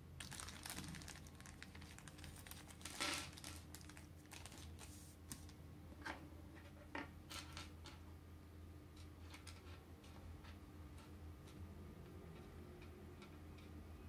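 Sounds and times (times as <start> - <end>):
packaging clicks and rustles: 0.2 - 5.5.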